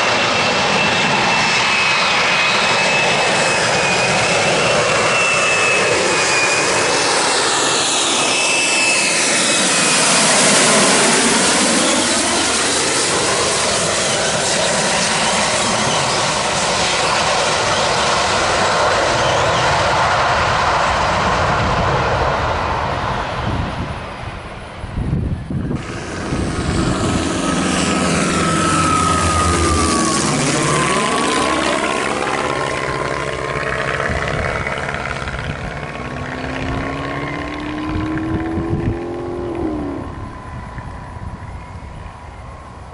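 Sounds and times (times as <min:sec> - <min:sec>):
loud jet engine noise: 0:00.0 - 0:42.9
propeller plane: 0:00.0 - 0:42.9
high whine sliding down: 0:25.1 - 0:42.8.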